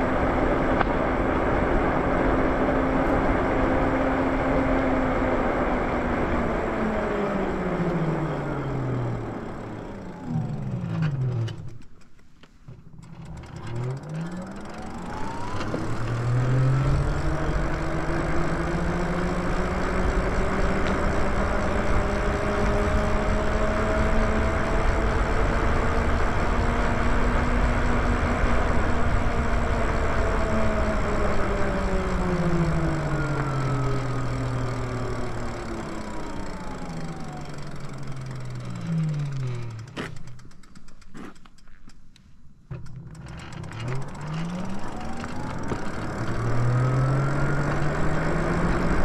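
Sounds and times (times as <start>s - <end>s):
electric motor whining: 0.0s - 12.0s, 12.9s - 40.4s, 42.8s - 49.0s
wind and tyre noise: 0.0s - 49.0s.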